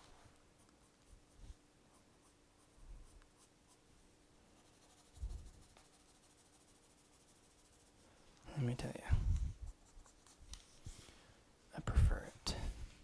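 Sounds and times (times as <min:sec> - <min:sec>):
pencil scratching on paper: 0:04.6 - 0:08.0, 0:09.6 - 0:10.5.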